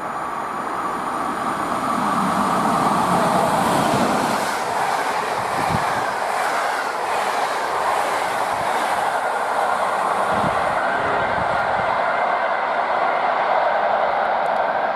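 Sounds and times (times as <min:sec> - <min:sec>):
train wheels rushing on rails: 0:00.0 - 0:14.9.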